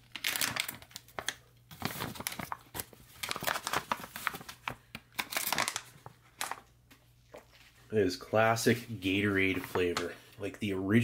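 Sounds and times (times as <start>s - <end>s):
plastic pouch crinkling: 0.0s - 6.7s.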